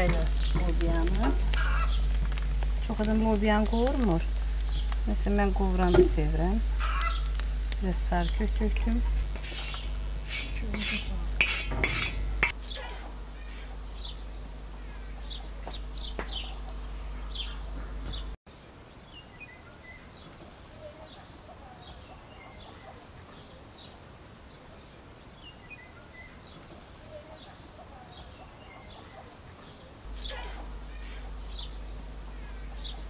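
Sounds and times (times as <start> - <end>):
low rumble: 0.0 - 18.4
small birds chirping: 0.0 - 33.0.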